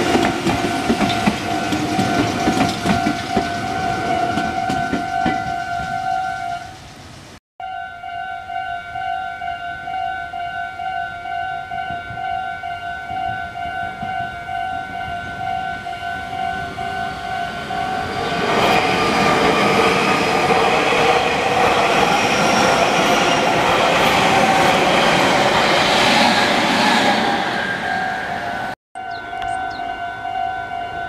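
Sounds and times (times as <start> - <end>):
electric trains running: 0.0 - 7.3, 15.3 - 28.8
level crossing bell ringing: 28.4 - 31.0.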